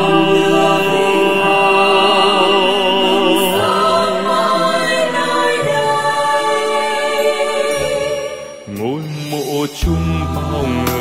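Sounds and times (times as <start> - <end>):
man singing with vibrato: 0.0 - 4.1, 8.0 - 11.0
instrumental backing: 8.4 - 11.0.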